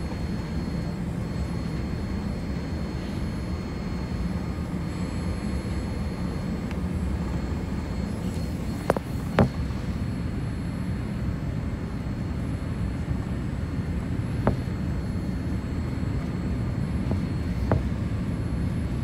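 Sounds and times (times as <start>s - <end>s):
airplane cabin engine rumble: 0.0s - 19.0s.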